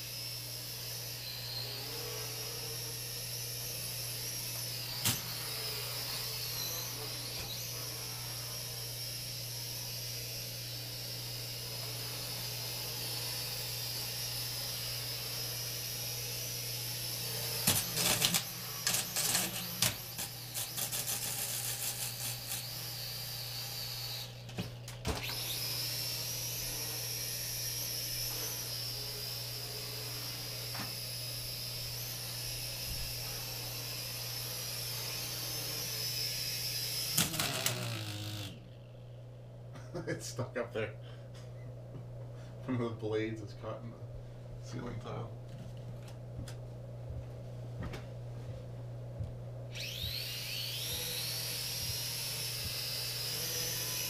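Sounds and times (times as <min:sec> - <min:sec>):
toy drone motors whining: 0:00.0 - 0:38.8, 0:49.7 - 0:54.0.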